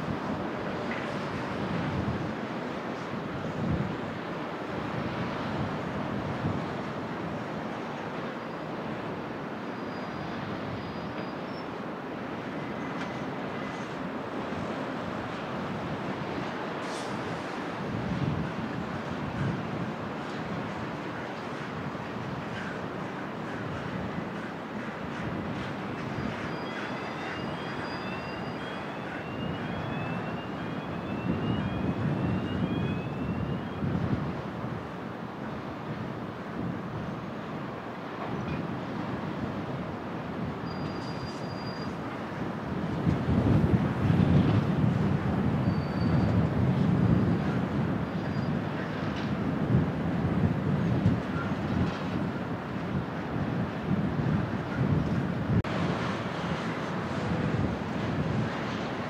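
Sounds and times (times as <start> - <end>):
distant heavy traffic rumble: 0.0 - 59.0
faint thin whistle: 9.7 - 11.7, 26.5 - 33.8, 40.6 - 42.0, 45.6 - 46.4
distant lorry traffic rumble: 12.5 - 35.1.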